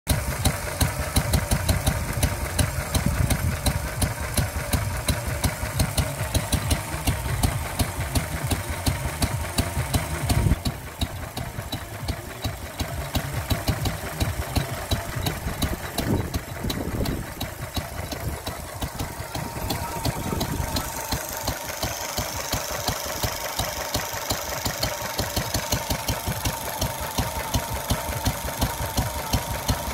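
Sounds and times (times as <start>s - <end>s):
stationary engine idling: 0.1s - 29.9s.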